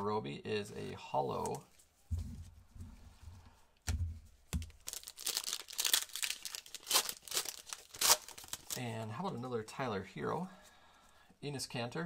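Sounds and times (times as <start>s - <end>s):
low thumps: 2.0s - 4.3s
foil wrapper crinkling and tearing: 4.7s - 8.9s.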